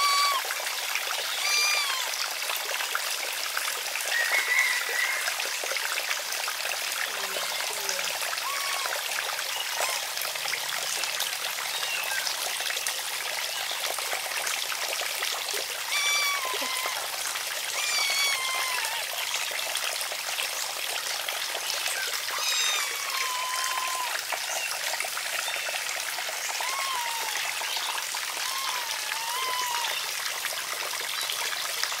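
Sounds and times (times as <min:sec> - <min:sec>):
high chirping calls: 0:00.0 - 0:00.4, 0:01.2 - 0:02.1, 0:15.9 - 0:17.0, 0:17.8 - 0:19.0, 0:22.1 - 0:24.8
water trickling: 0:00.0 - 0:32.0.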